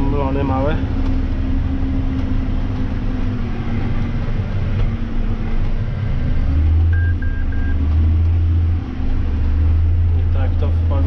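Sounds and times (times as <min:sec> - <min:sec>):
tractor diesel engine droning: 0:00.0 - 0:11.0
short electronic beeps: 0:06.9 - 0:07.8.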